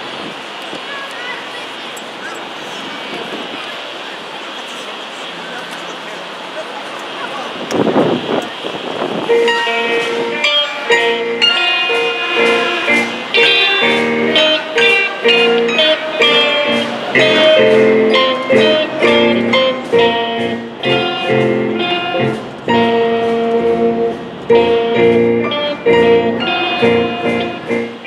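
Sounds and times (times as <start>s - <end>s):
live band with amplified guitars: 7.0s - 28.0s.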